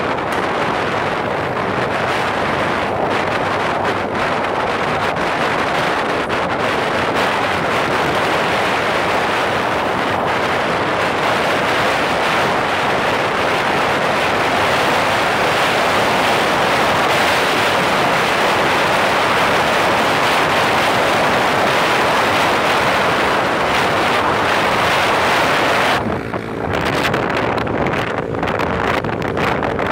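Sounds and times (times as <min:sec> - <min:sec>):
wind rushing over microphone: 0:00.0 - 0:29.9.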